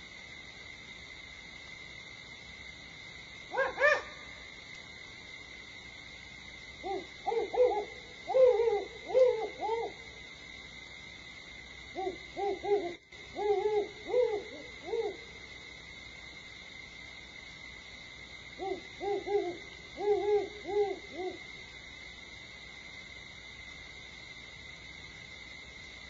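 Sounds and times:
higher-pitched owl call notes: 0:03.5 - 0:04.2, 0:06.8 - 0:10.2, 0:11.9 - 0:15.3, 0:18.6 - 0:21.4
owl hooting: 0:03.5 - 0:04.3, 0:06.8 - 0:10.2, 0:11.9 - 0:15.4, 0:18.6 - 0:21.5.

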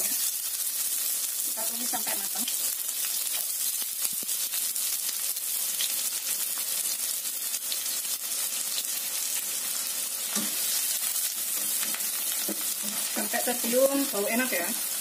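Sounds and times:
oil popping and crackling: 0:00.0 - 0:15.0
onion sizzling in hot oil: 0:00.0 - 0:15.0.

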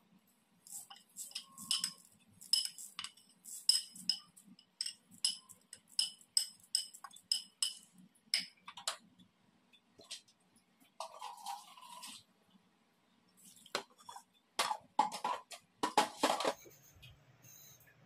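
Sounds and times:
metal clinks and knocks: 0:01.3 - 0:08.5.

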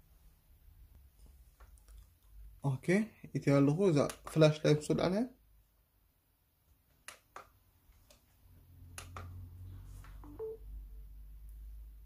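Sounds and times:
two-note electronic beep: 0:10.2 - 0:10.8.

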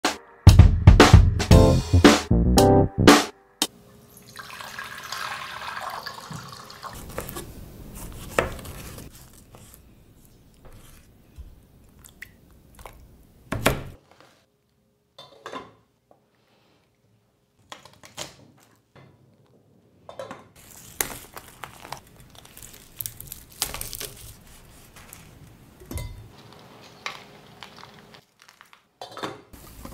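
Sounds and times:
water splashing in a pot: 0:04.1 - 0:07.1.

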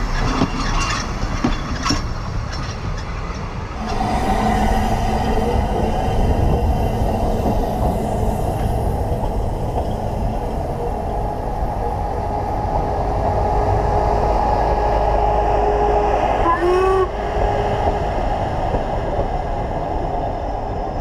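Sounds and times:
wheels clicking over rail joints: 0:00.0 - 0:04.1
train carriages rolling past: 0:00.0 - 0:21.0
steady whine: 0:03.7 - 0:21.0.

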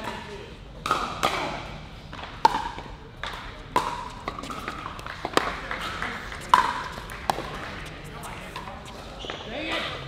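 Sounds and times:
paddles striking ball: 0:00.8 - 0:08.8
ball bouncing: 0:00.8 - 0:09.9
footsteps: 0:04.0 - 0:10.0.

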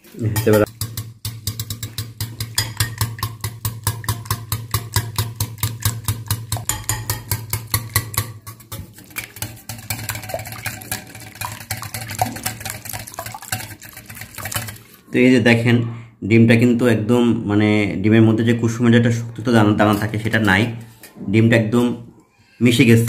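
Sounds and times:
whisk clicking against glass bowl: 0:00.4 - 0:14.9.

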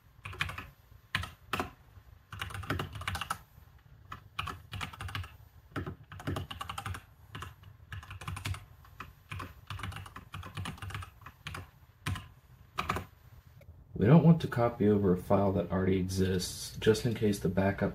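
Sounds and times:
keyboard typing: 0:00.2 - 0:13.1.

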